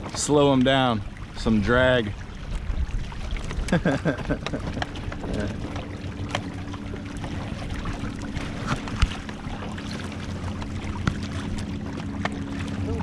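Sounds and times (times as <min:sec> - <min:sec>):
water splashing against kayak hulls: 0:00.0 - 0:13.0.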